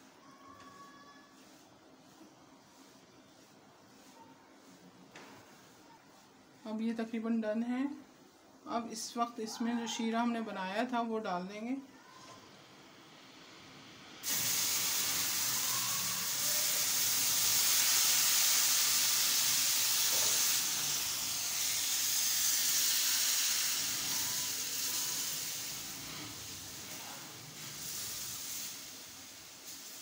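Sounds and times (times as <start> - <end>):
syrup hissing in hot pan: 13.2 - 30.0.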